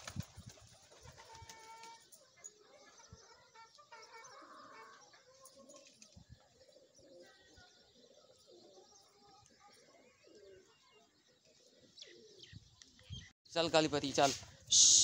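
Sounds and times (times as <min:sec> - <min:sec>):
pigeons cooing: 0:00.8 - 0:12.6.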